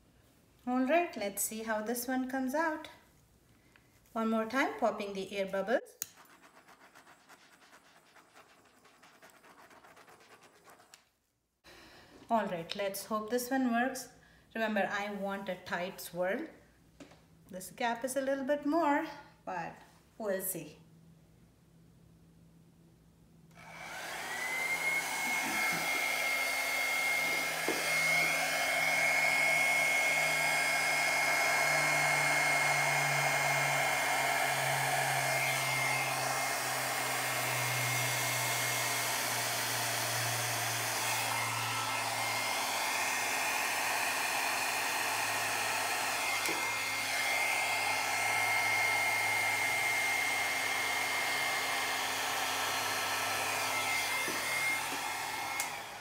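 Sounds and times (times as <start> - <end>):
hair dryer blowing: 23.5 - 56.0.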